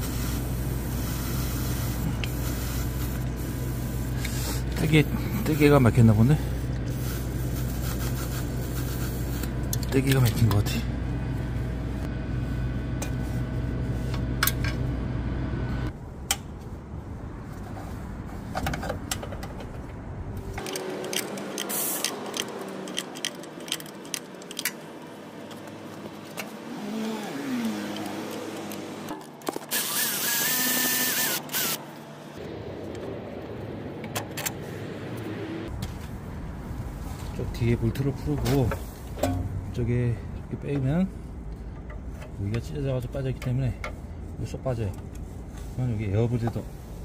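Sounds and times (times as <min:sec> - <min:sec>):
low hum: 0:00.0 - 0:18.3, 0:31.2 - 0:38.0
hand tools clicking on metal: 0:20.6 - 0:26.5.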